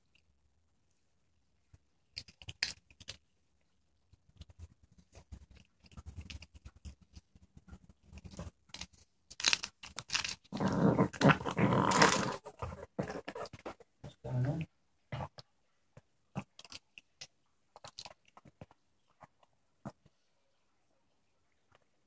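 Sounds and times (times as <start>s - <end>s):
dog growling: 10.5s - 13.5s.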